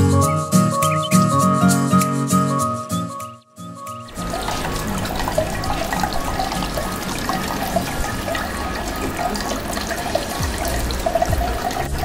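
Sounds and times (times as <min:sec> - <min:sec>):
background music: 0:00.0 - 0:12.0
fountain water splashing: 0:04.1 - 0:12.0.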